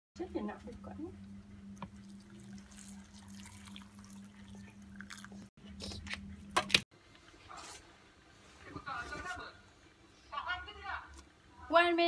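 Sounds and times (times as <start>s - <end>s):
steady low hum: 0.2s - 8.4s
water pouring into cup: 1.8s - 5.5s.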